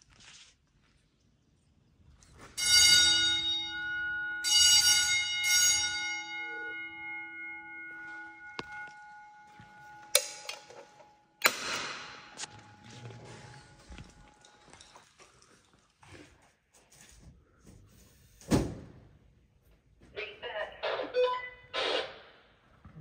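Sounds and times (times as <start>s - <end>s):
metal object clanging: 9.8s - 13.1s.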